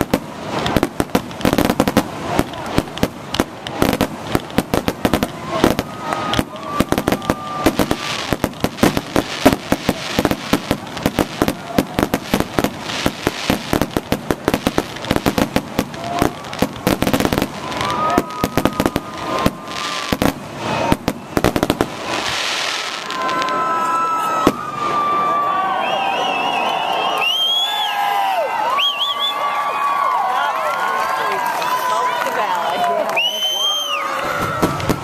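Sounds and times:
fireworks bangs and crackles: 0:00.0 - 0:35.0
crowd cheering and whistling: 0:05.1 - 0:08.5, 0:15.3 - 0:35.0.

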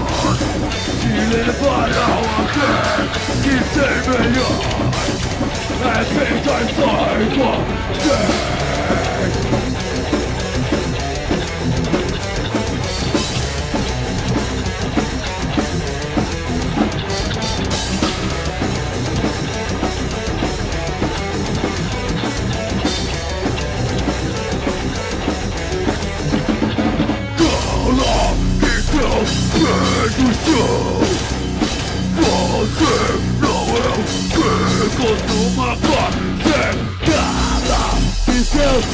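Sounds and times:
shouted vocal: 0:00.0 - 0:05.2, 0:05.8 - 0:09.6, 0:27.4 - 0:31.4, 0:32.1 - 0:38.9
metal band playing: 0:00.0 - 0:38.9.

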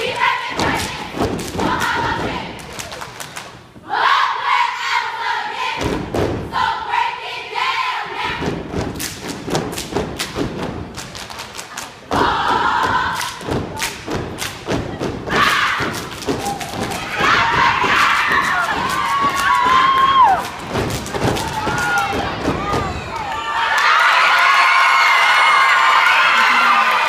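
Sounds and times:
children stomping and clapping: 0:08.7 - 0:23.3.

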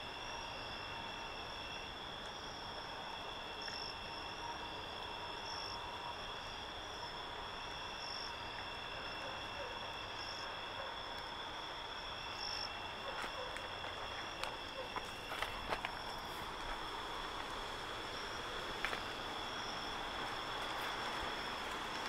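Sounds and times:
crickets and insects trilling: 0:00.0 - 0:22.0
faint hiss: 0:15.4 - 0:22.0.

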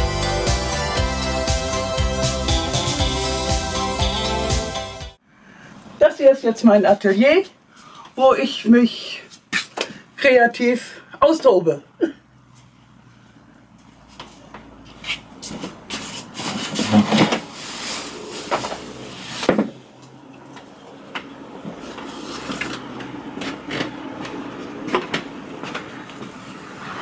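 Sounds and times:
chair scraping: 0:14.1 - 0:20.6, 0:21.6 - 0:27.0.

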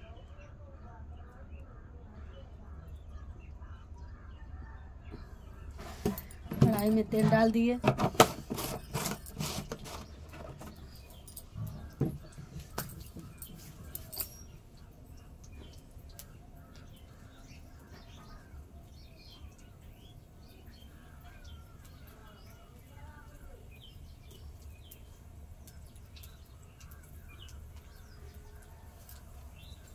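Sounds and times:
small birds chirping: 0:00.0 - 0:29.9
plastic jar knocking: 0:06.0 - 0:10.8.

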